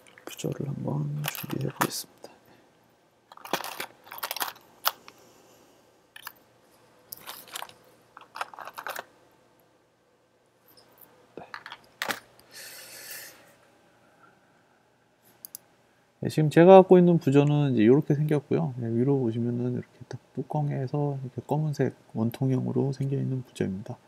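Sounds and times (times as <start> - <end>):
small parts rustling: 0.0 - 2.0, 3.3 - 5.2, 6.2 - 6.4, 7.1 - 9.2, 10.7 - 12.4.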